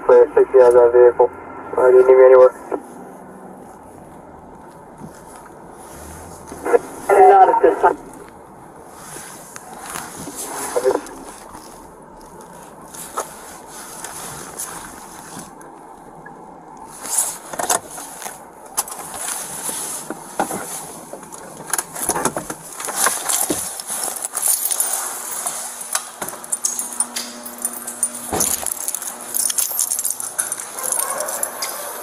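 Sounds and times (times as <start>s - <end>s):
gear rustling clicking and jingling: 20.5s - 32.0s.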